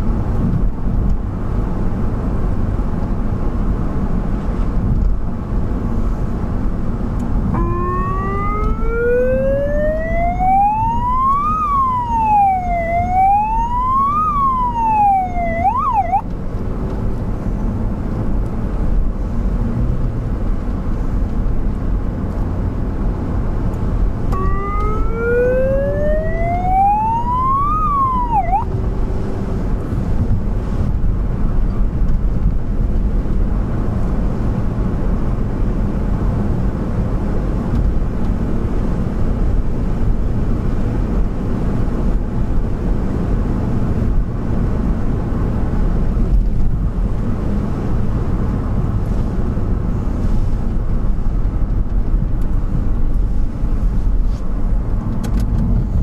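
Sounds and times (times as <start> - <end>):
vehicle engine and road noise: 0.0 - 56.0
siren wailing: 7.5 - 16.2, 24.3 - 29.0.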